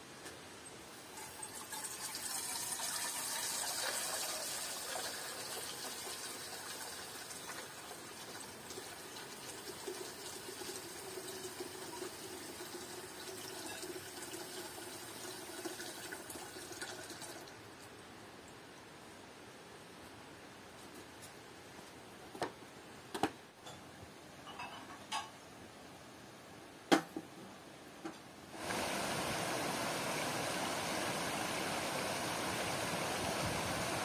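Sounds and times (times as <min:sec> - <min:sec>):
water running into metal pot: 0:01.0 - 0:17.5.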